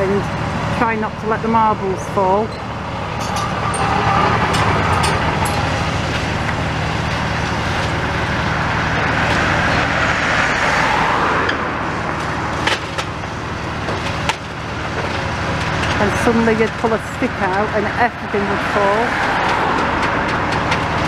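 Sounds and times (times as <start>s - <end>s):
broad rushing noise: 0.0s - 16.5s
diesel engine running under load: 0.0s - 21.0s.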